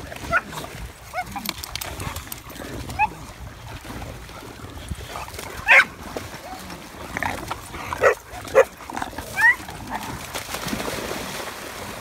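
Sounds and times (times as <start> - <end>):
dogs splashing through water: 0.0 - 12.0
dog barking: 5.7 - 5.9, 8.0 - 8.7.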